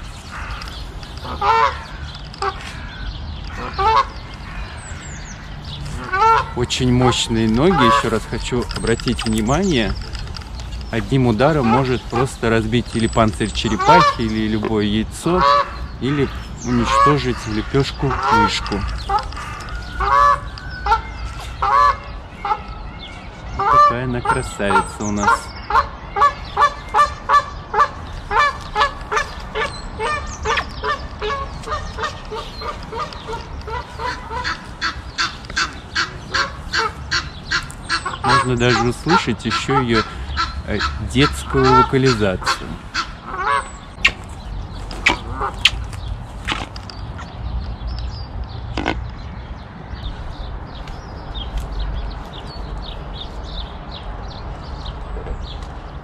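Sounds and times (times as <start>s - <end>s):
high falling bird chirps: 0.0s - 46.2s.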